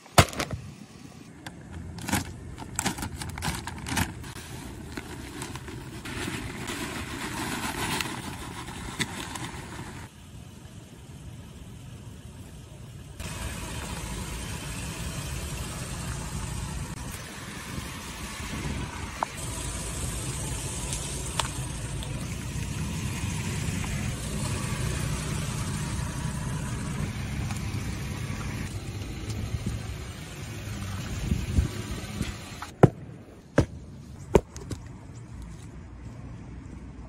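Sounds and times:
tyres rolling over asphalt: 1.3 - 35.0
truck engine running: 8.4 - 32.7.

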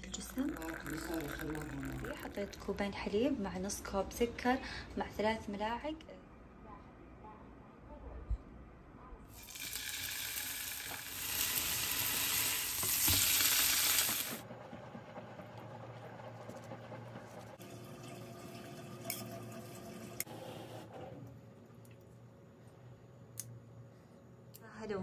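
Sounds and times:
food sizzling in a pan: 9.3 - 14.4.

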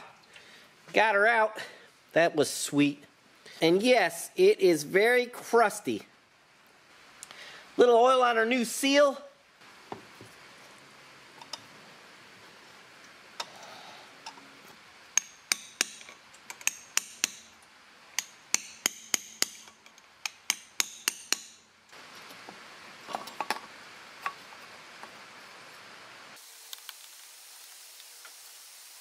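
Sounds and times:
hammer tapping metal: 15.2 - 17.5, 18.2 - 21.7
rain on a metal roof: 22.0 - 29.0.

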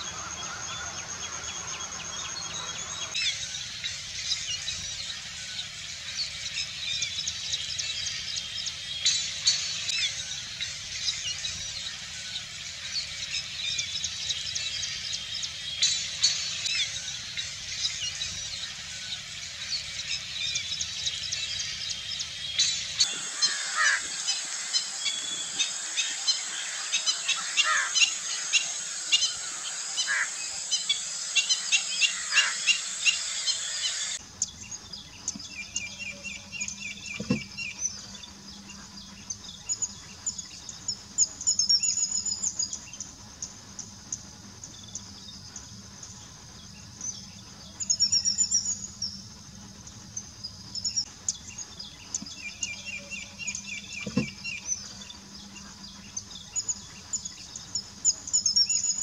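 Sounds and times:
bird trill: 0.0 - 42.8
small birds chirping: 0.0 - 59.0
faint insect buzz: 23.0 - 34.2.

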